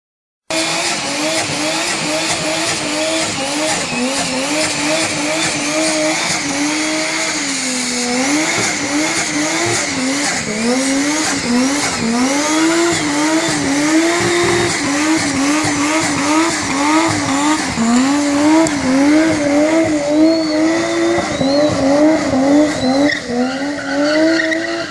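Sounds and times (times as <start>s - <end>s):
engine revving at high revs: 0.4s - 24.9s.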